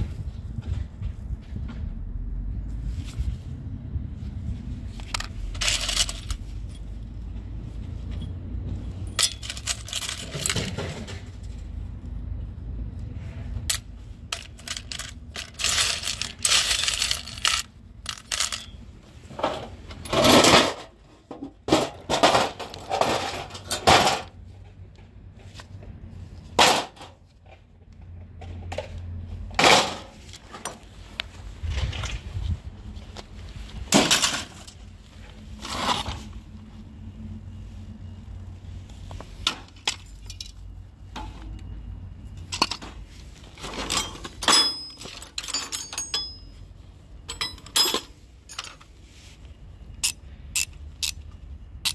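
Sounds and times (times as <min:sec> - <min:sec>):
metal pieces clinking in steel bowl: 0:05.6 - 0:06.4, 0:09.1 - 0:10.8, 0:14.4 - 0:18.8.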